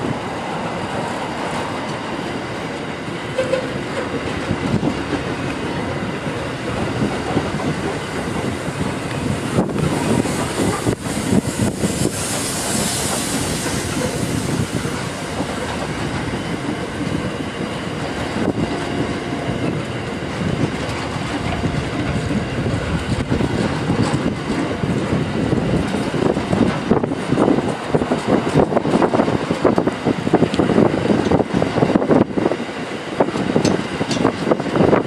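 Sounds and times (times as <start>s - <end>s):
train wheels rumbling on rail: 0.0s - 35.0s
wheel clacks over rail joints: 18.0s - 30.6s, 33.2s - 35.0s.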